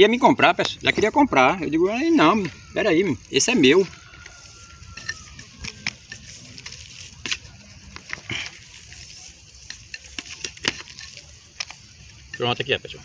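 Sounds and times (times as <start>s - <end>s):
trowel scraping soil: 0.6s - 12.7s.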